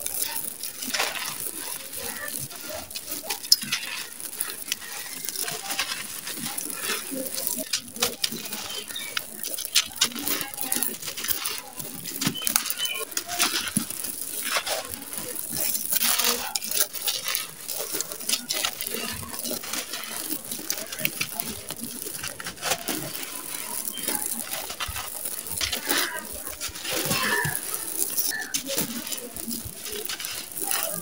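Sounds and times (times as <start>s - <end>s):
chunks crunching in hands: 0.0s - 31.0s
grit pouring onto floor: 0.0s - 31.0s.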